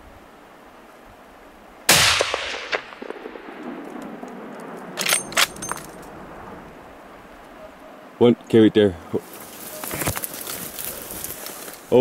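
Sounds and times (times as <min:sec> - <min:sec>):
rifle shot echoing: 0:01.9 - 0:05.8.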